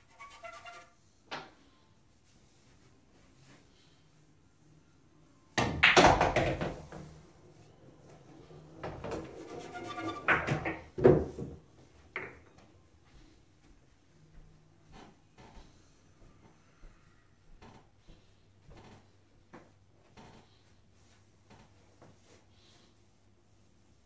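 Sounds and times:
pool balls clicking: 5.6 - 7.2, 8.1 - 12.6
balls rolling on cloth: 6.2 - 11.7.

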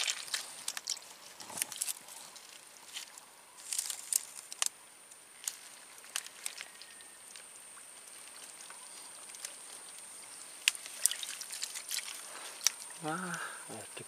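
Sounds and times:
hands sloshing in muddy water: 0.0 - 2.6, 10.6 - 13.4.

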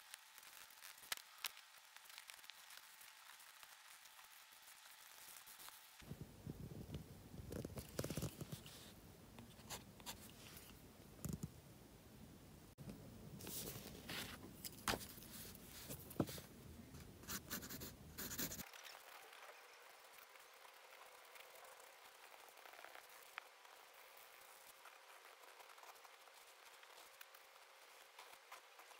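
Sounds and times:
pencil scratching on paper: 17.3 - 18.6.

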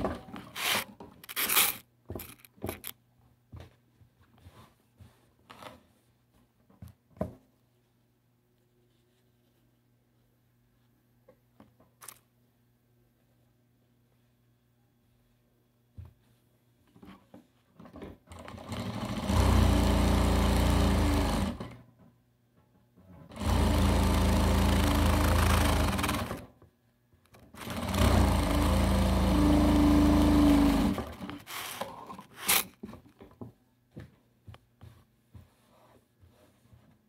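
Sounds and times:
sewing machine stitching: 18.3 - 21.8, 23.3 - 26.5, 27.4 - 32.7.

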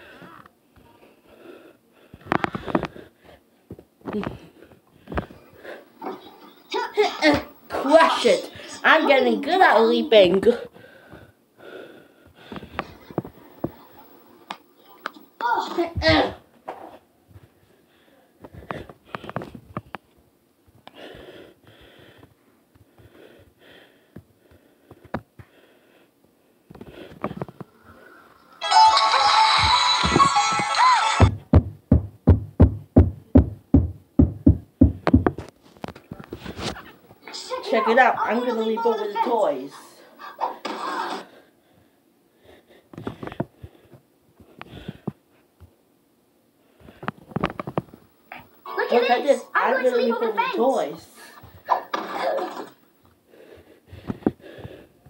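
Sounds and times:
loud music: 28.6 - 31.4
knocks and thumps on microphone: 31.2 - 35.5.

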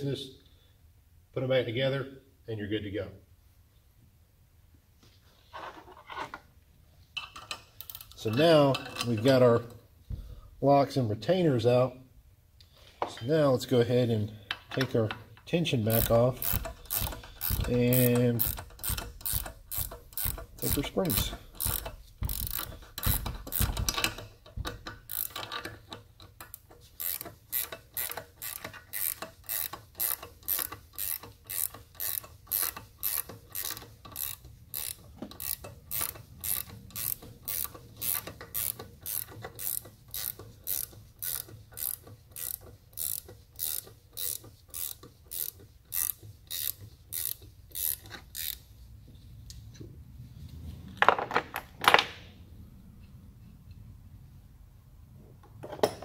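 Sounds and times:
hand ratchet clicking: 7.2 - 9.8, 15.1 - 48.7.

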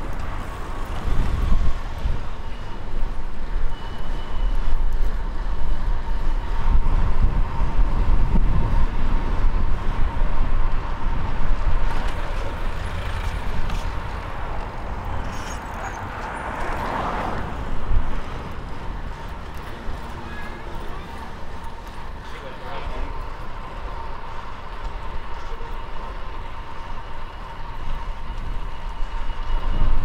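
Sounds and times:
wind rumbling on microphone: 0.0 - 20.2, 26.2 - 30.0
street traffic passing: 0.0 - 30.0
vehicle passing: 11.0 - 25.2.

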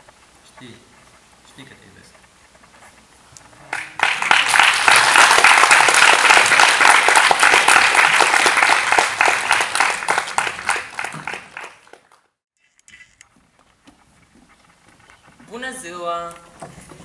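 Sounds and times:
audience applauding: 3.7 - 12.3.

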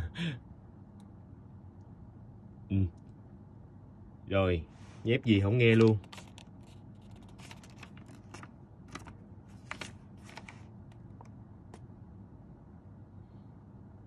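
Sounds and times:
faint irregular clicks: 0.9 - 1.2.

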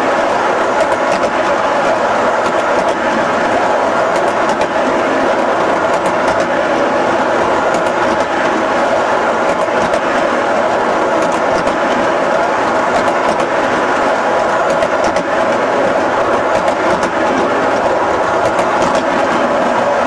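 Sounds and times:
model train wheels rumbling: 0.0 - 20.0
wheels clicking over track joints: 0.8 - 1.6, 4.1 - 4.8, 5.8 - 6.5, 7.6 - 8.4, 9.4 - 10.1, 11.2 - 12.2, 12.9 - 13.6, 14.4 - 19.6.

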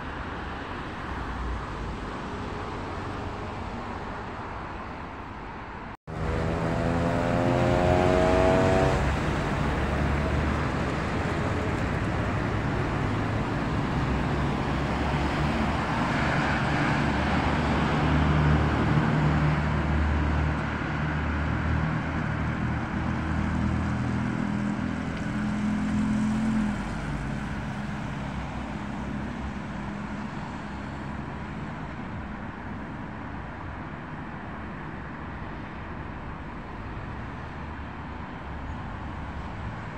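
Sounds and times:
cars passing: 0.0 - 39.9
vehicle accelerating: 6.1 - 31.7.

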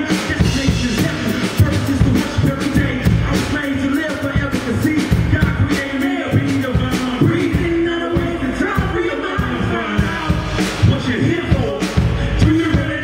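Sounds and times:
hip-hop music with drum beat: 0.0 - 13.0
person singing: 0.0 - 13.0.

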